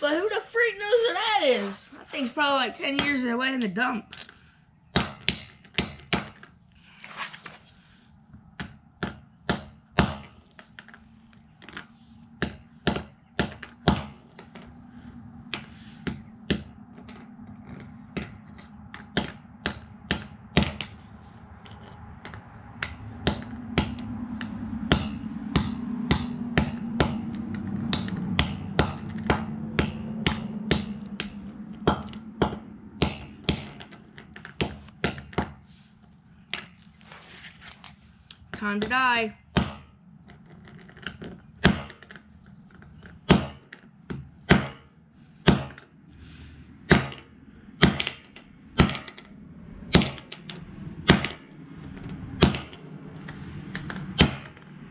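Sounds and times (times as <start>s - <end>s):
low steady hum: 0.0s - 54.9s.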